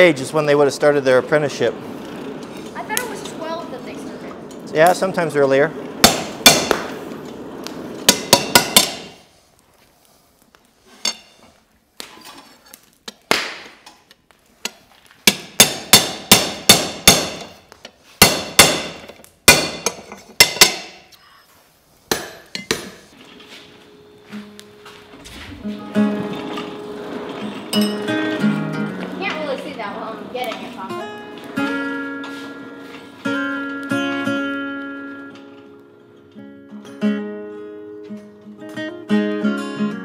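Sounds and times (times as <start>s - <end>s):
hammer striking metal: 6.0s - 6.9s, 8.1s - 9.2s, 15.2s - 17.6s, 18.2s - 21.0s, 22.1s - 23.0s.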